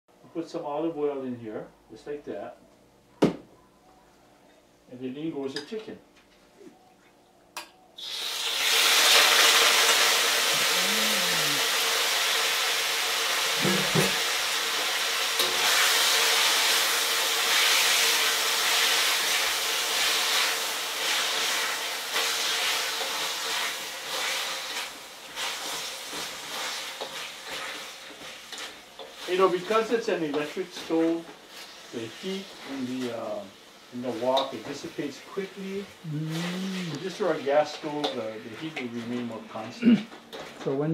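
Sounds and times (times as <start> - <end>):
chicken sizzling in oil: 8.0 - 38.9
spatula stirring in wok: 18.9 - 33.1.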